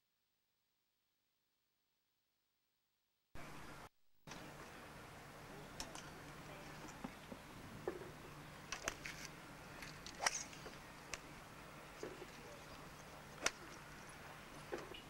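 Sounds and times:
faint steady hum: 0:03.4 - 0:15.0
golf clubs striking balls: 0:05.7 - 0:15.0.

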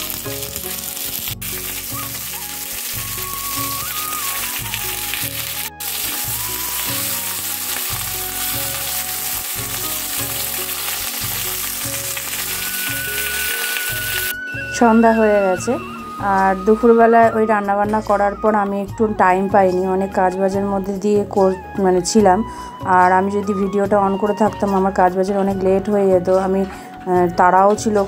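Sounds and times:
metal spatula turning food: 0:00.0 - 0:14.3
vegetables sizzling in hot oil: 0:00.0 - 0:16.5
background music: 0:00.0 - 0:28.0.

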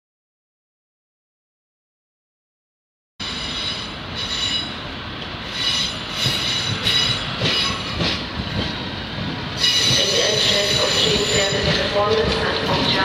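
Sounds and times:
train wheels squealing: 0:03.2 - 0:04.8, 0:05.4 - 0:08.2, 0:09.6 - 0:11.9.

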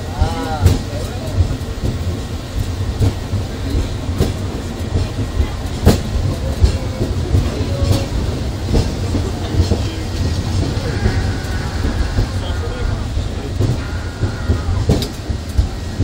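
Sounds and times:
funicular car rumbling on rails: 0:00.0 - 0:16.0
sharp clicks and knocks: 0:13.6 - 0:15.8.

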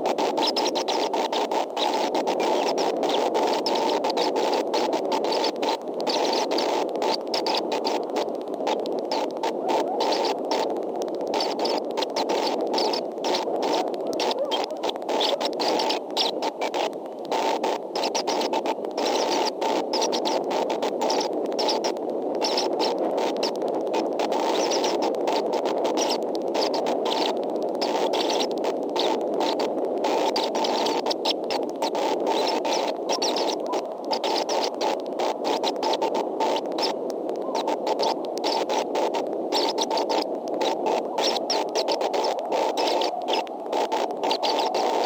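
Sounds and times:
static hiss with crackling: 0:00.0 - 0:45.0.

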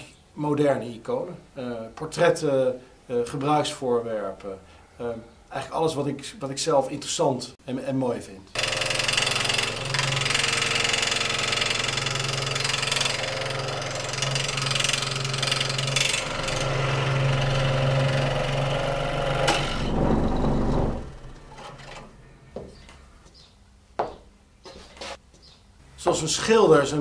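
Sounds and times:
scroll saw cutting wood: 0:08.6 - 0:22.2.

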